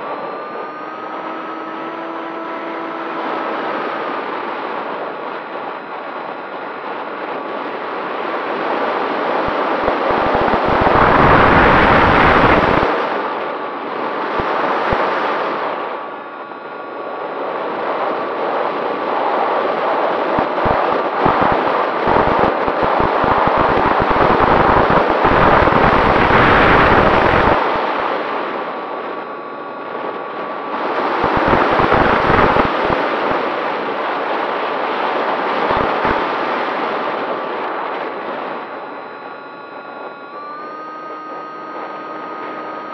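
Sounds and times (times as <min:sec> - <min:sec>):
faint motor whine: 0:00.0 - 0:42.9
wind buffeting microphone: 0:18.8 - 0:27.8, 0:30.7 - 0:34.2.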